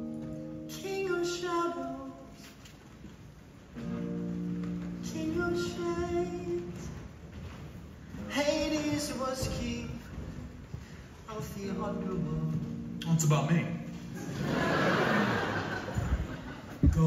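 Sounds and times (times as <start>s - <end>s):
electric guitar chords: 0.0s - 2.4s.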